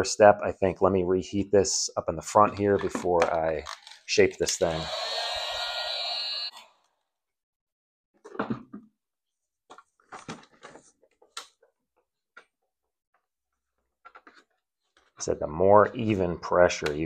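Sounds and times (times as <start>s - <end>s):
heat gun blowing: 4.6s - 6.6s.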